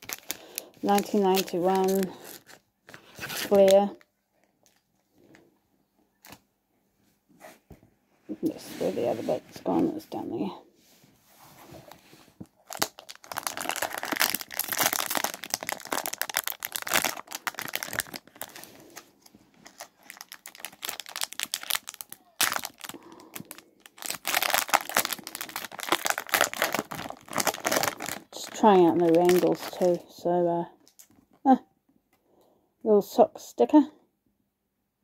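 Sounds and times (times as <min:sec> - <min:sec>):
foil wrapper crinkling and tearing: 0:00.0 - 0:04.8, 0:12.5 - 0:30.1, 0:30.8 - 0:31.2.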